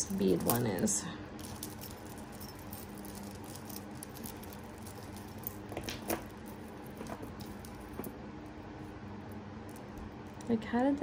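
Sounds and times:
beads clicking and rattling: 0.0 - 8.1.

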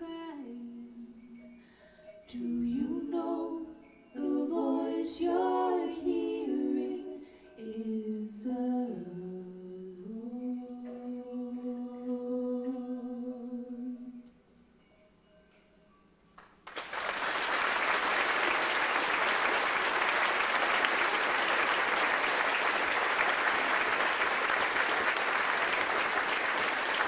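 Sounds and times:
choir singing a cappella: 2.3 - 14.2.

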